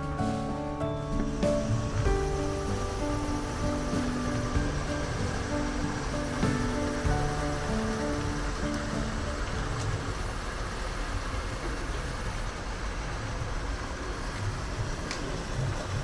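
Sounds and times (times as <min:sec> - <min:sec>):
background music: 0:00.0 - 0:10.6
water rushing through a channel: 0:00.0 - 0:16.0.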